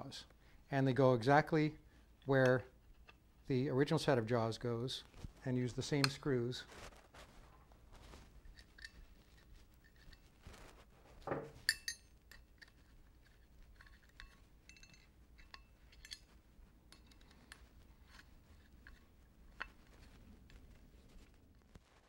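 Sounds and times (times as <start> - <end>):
faint metal clinks and taps: 8.5 - 10.3, 11.2 - 19.0.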